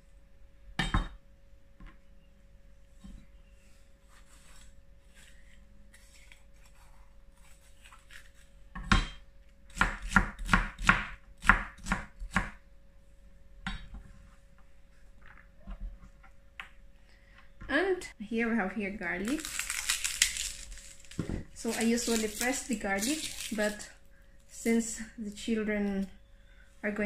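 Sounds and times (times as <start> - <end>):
knife chopping on cutting board: 9.8 - 12.6.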